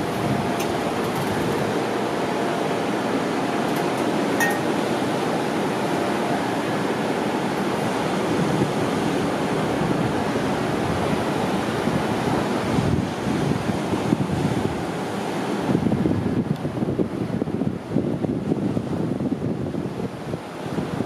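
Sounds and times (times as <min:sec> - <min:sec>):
wind buffeting microphone: 0:00.0 - 0:02.3, 0:07.8 - 0:21.0
waves breaking on beach: 0:00.0 - 0:21.0.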